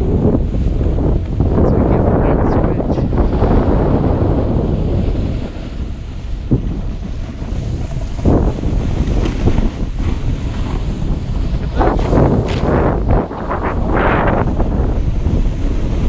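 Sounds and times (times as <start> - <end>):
wind buffeting microphone: 0.0 - 16.0
snowboard edge scraping snow: 3.1 - 16.0.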